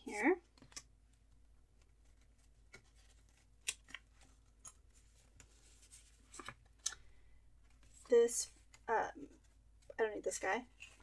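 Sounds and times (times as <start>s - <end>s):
paper rustling: 0.1s - 7.0s.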